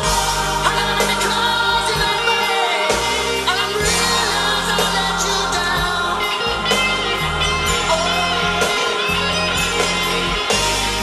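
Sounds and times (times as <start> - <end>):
pop-rock song over loudspeakers: 0.0 - 11.0.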